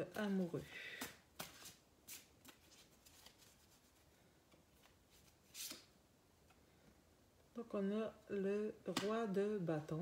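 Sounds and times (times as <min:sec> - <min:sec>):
cards shuffling: 0:00.1 - 0:05.9.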